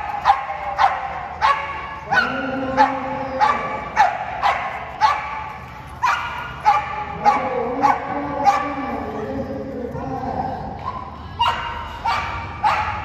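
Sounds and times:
dog barking: 0.2s - 5.4s, 6.0s - 8.9s, 11.4s - 13.0s.

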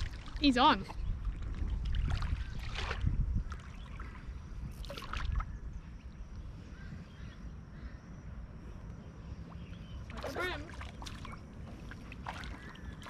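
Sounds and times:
rustling or splashing: 0.0s - 5.5s, 10.0s - 13.0s
wind rumbling on microphone: 0.0s - 13.0s.

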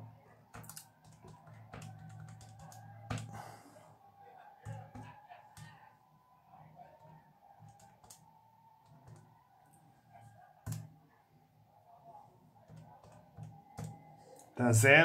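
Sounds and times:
faint background music: 0.0s - 15.0s
calculator keys clicking: 0.6s - 3.3s.

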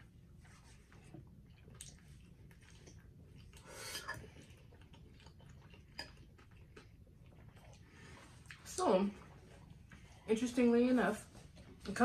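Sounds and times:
person chewing food: 0.1s - 10.3s
slurping: 0.5s - 10.4s.

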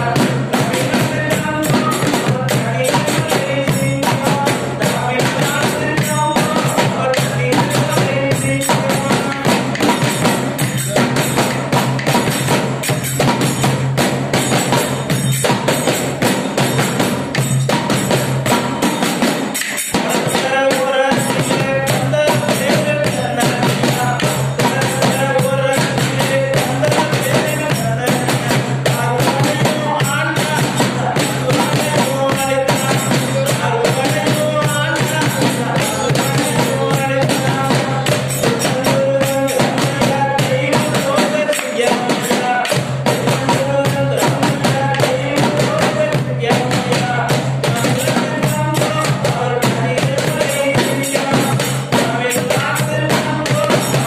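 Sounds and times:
fast hand percussion beat: 0.0s - 54.0s
man singing through loudspeaker: 0.0s - 54.0s.

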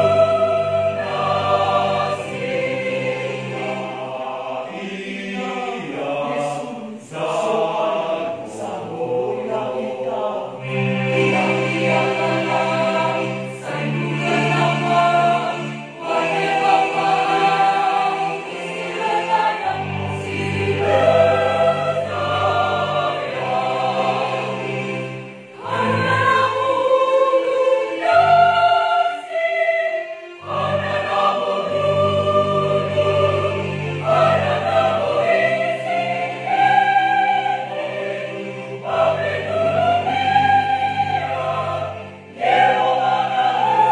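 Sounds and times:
choir singing a hymn: 0.0s - 43.9s.

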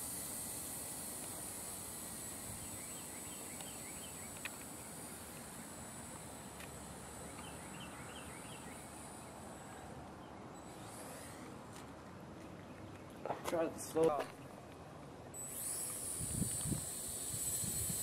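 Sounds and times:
quadcopter motors whining: 0.0s - 11.8s, 15.3s - 18.0s
bird chirping: 2.2s - 11.6s.

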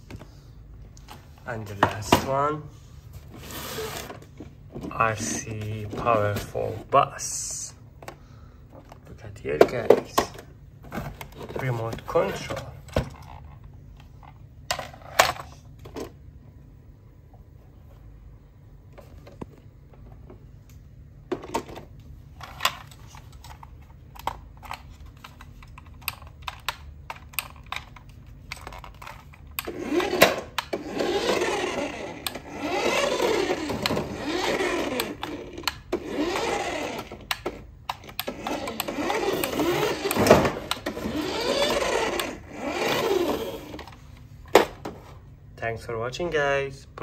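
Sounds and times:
small electric motor whining: 29.6s - 37.4s, 38.2s - 43.9s.

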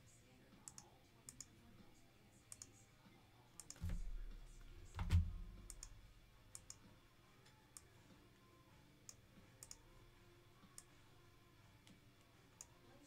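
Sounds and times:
computer mouse and keyboard clicks: 3.6s - 6.0s, 6.6s - 6.8s, 9.1s - 9.8s.

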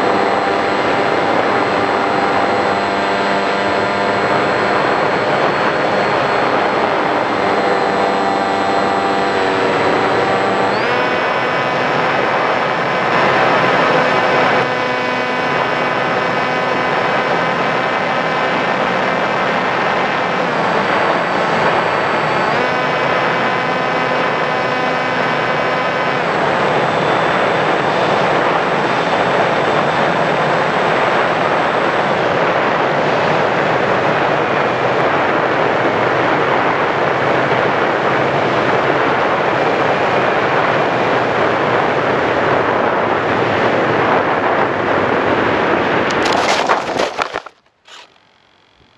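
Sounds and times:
wind rushing over microphone: 0.0s - 47.4s
electric motor propeller whine: 0.0s - 48.9s.

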